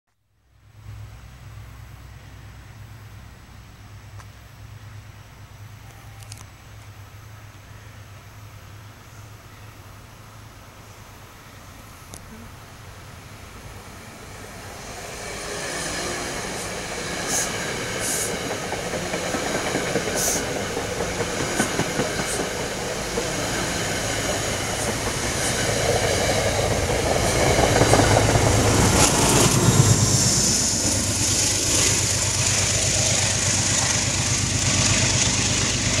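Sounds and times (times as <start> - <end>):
diesel locomotive rumble: 0.6 - 36.0
train wheels rushing on rail: 12.8 - 36.0.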